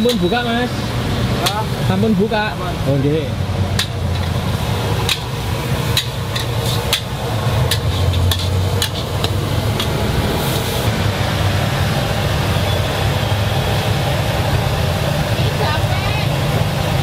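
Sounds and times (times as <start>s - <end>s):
cooking utensils clinking: 0.0s - 0.4s, 5.0s - 10.0s
low engine hum: 0.7s - 17.0s.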